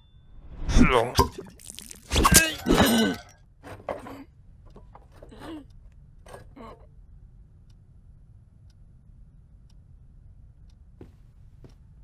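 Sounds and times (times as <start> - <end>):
low steady hum: 0.0 - 12.0
person vocal noises: 6.5 - 6.9.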